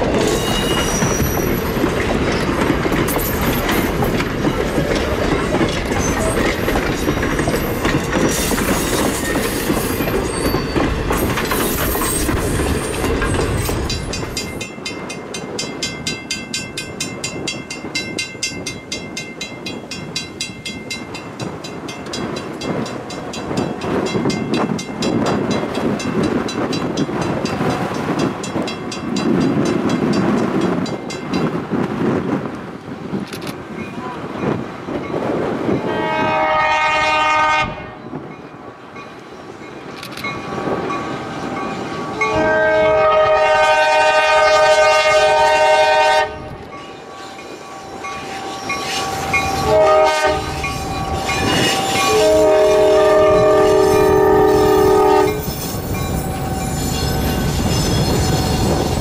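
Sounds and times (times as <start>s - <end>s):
train wheels clicking over rail joints: 0.0s - 35.9s.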